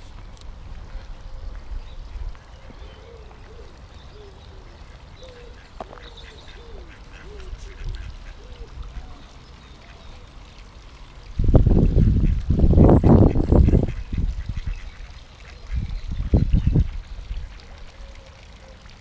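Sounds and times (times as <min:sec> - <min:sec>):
ducks quacking softly: 0:01.6 - 0:10.4, 0:12.0 - 0:15.9.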